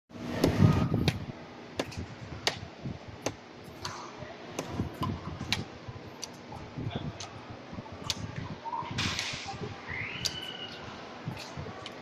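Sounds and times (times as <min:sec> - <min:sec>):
rackets hitting shuttlecock: 0:01.8 - 0:06.4.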